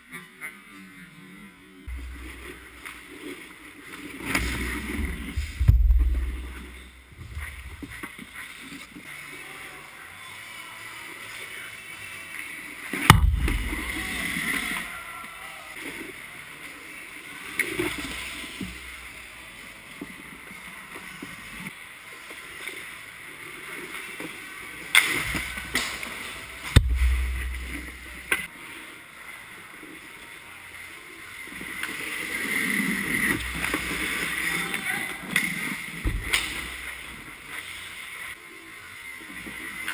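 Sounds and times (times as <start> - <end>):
puck and stick knocks: 4.3 - 8.1, 13.1 - 14.1, 26.7 - 28.5, 36.0 - 36.9.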